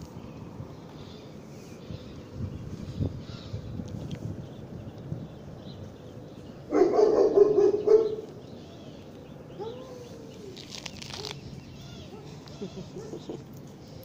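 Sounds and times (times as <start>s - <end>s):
dog barking: 6.7s - 8.3s.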